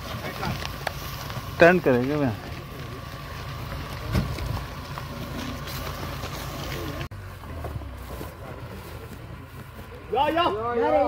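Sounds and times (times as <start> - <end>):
off-road vehicle engine rumbling: 0.0 - 11.0.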